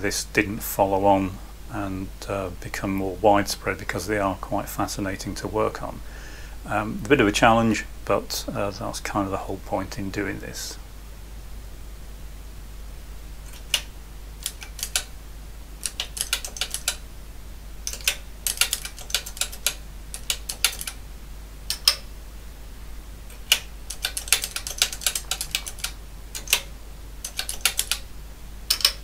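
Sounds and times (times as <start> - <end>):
calculator keys clicking: 13.4 - 15.1, 15.8 - 17.0, 17.9 - 21.0, 21.7 - 22.0, 23.3 - 28.0, 28.7 - 29.0.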